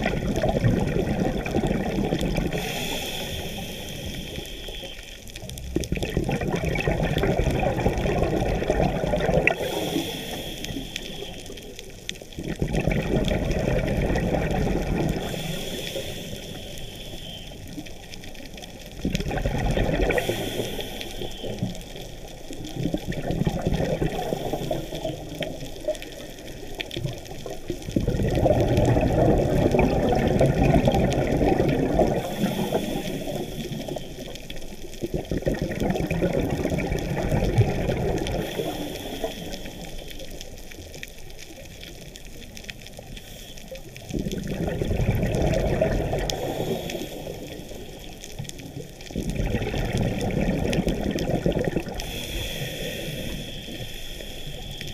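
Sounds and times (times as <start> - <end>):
exhaled bubbles rushing underwater: 0.0 - 54.9
regulator inhale hiss: 2.4 - 5.5, 9.4 - 12.0, 15.1 - 18.6, 20.0 - 22.6, 24.0 - 27.7, 32.0 - 34.9, 38.2 - 40.8, 42.7 - 44.0, 46.2 - 49.1, 51.9 - 54.9.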